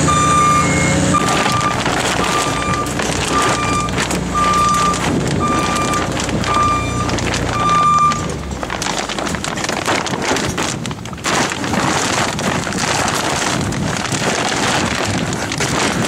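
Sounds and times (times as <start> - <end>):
back-up alarm beeping: 0.0 - 8.3
engine running: 0.0 - 16.0.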